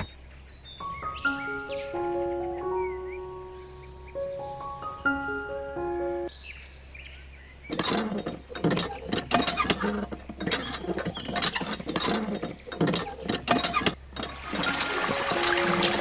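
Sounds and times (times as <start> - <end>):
hand pump handle clicking: 7.7 - 15.8.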